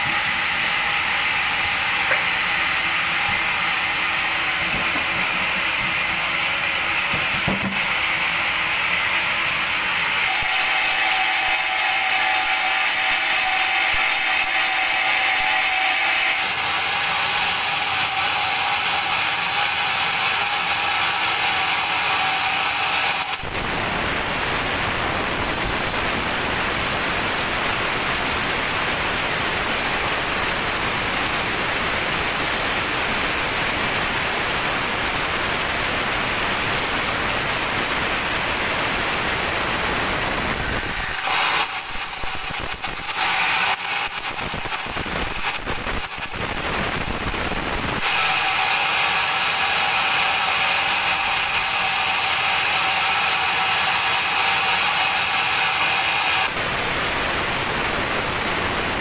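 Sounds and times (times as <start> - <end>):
band saw blade cutting log: 0.0 - 23.7, 39.8 - 46.4, 48.0 - 56.6
sawmill mechanical whine: 0.0 - 59.0.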